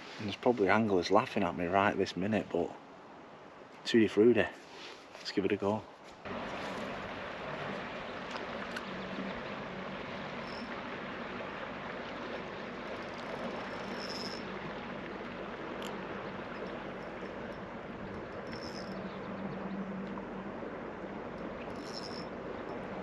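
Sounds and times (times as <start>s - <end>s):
wind: 0.0s - 23.0s
faint low hum: 6.3s - 23.0s
lapping water: 6.3s - 23.0s.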